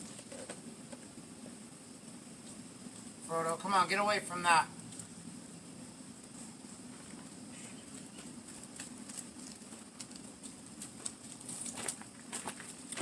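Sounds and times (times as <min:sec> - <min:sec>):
faint clicks and crackles: 0:04.8 - 0:05.2, 0:06.2 - 0:13.0.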